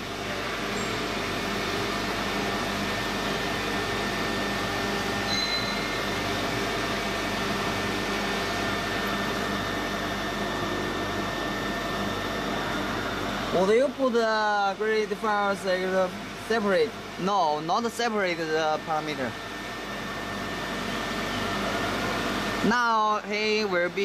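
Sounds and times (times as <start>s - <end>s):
mechanical whirring hum: 0.0s - 24.0s.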